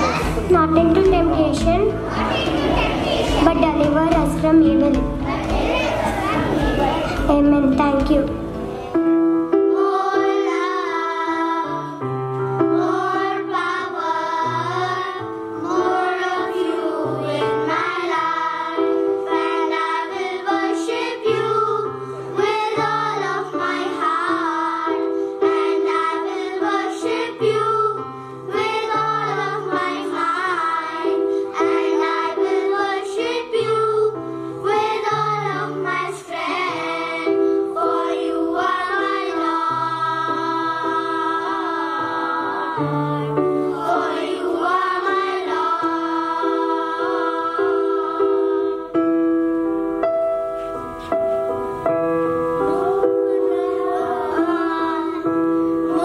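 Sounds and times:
held low accompaniment notes: 0:00.0 - 0:09.4
children's choir singing: 0:00.0 - 0:49.3, 0:50.2 - 0:56.0.

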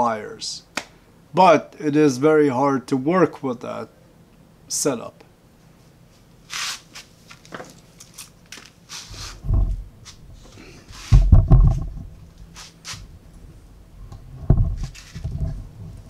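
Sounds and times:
dull thumps: 0:09.4 - 0:12.2, 0:14.1 - 0:15.7.

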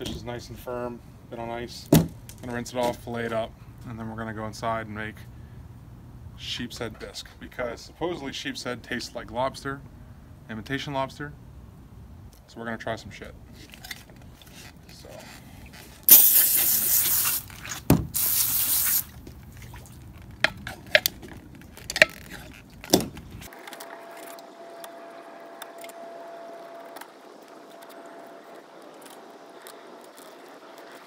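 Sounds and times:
water jet hissing: 0:16.0 - 0:19.3, 0:23.5 - 0:31.0.

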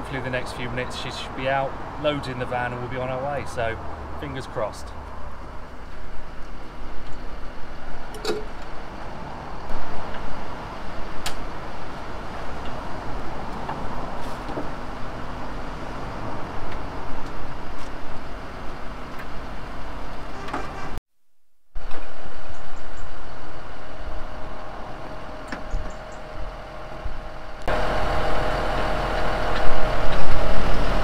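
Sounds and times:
heavy machine engine running: 0:21.8 - 0:31.0.

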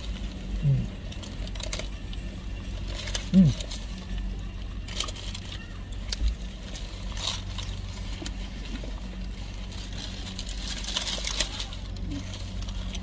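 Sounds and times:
car engine idling: 0:00.0 - 0:13.0
paper wrapper crinkling: 0:00.0 - 0:13.0
eating noises: 0:00.1 - 0:01.6, 0:03.1 - 0:04.0.

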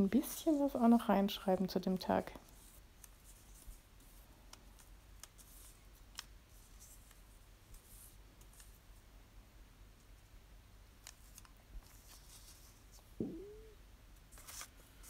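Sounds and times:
paper rustling: 0:11.0 - 0:13.1, 0:14.3 - 0:15.0.

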